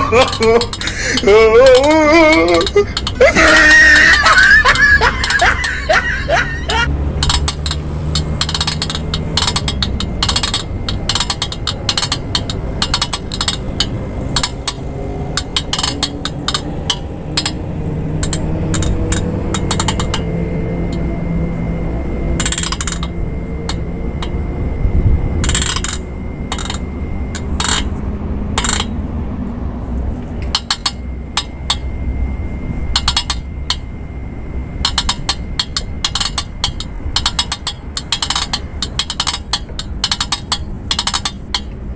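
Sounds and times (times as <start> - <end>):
metallic clicks and clinks: 0.0 - 21.1, 22.4 - 24.4, 25.4 - 28.0, 28.6 - 29.0, 30.4 - 32.0, 32.9 - 34.0, 34.8 - 41.9.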